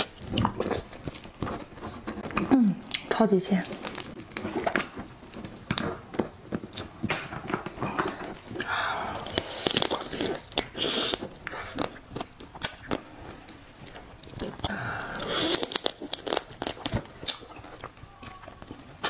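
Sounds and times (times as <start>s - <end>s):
crab tearing apart: 0.0s - 8.4s, 9.1s - 13.0s, 14.0s - 19.0s
crab shell cracking: 0.0s - 13.0s, 13.8s - 19.0s.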